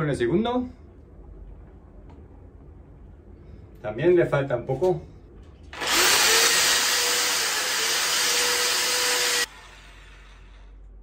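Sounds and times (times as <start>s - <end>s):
electric drill boring into ceiling: 5.7s - 10.7s.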